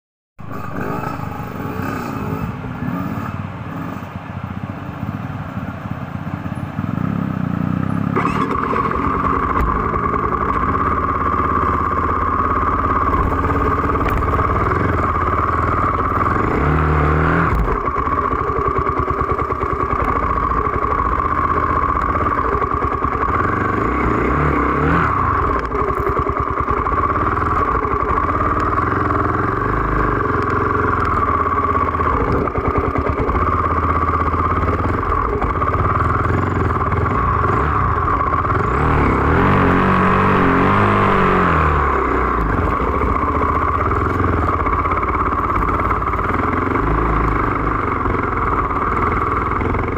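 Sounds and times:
motorcycle engine running: 0.4 - 49.9.

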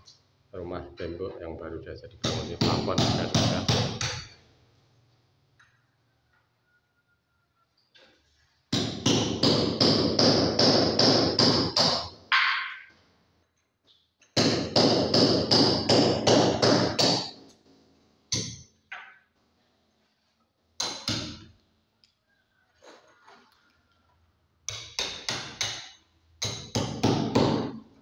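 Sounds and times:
hammer striking masonry wall: 2.2 - 4.4, 8.7 - 12.9, 14.3 - 17.7, 18.3 - 19.2, 20.8 - 21.5, 24.6 - 28.0.

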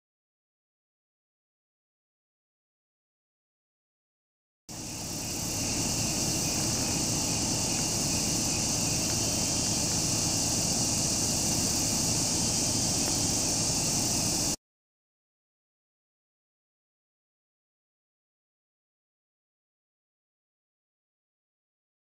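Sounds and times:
insect chorus: 4.7 - 14.6.

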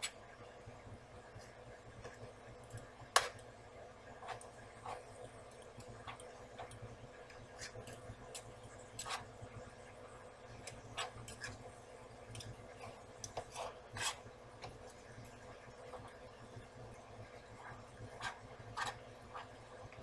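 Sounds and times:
utensils scraping frying pan: 12.9 - 14.3.

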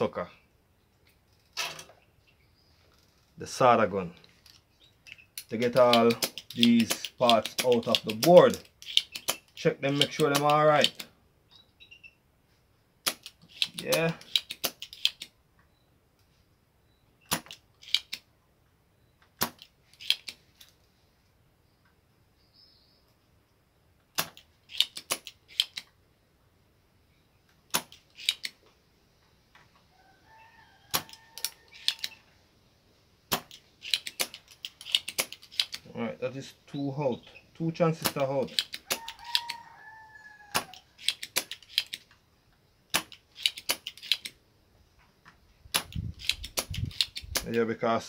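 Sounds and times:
solder sucker snapping and clicking: 5.1 - 11.1, 33.3 - 35.8, 45.7 - 47.6.

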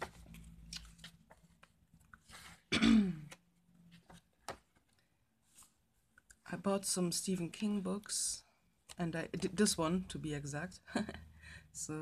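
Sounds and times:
paper pages turning: 0.0 - 2.7, 3.3 - 5.8
person clearing throat: 2.7 - 3.4.

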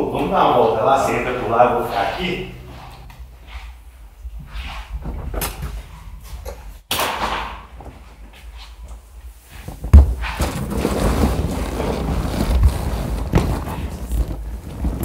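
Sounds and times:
clothes rustling against seats: 7.9 - 15.0.

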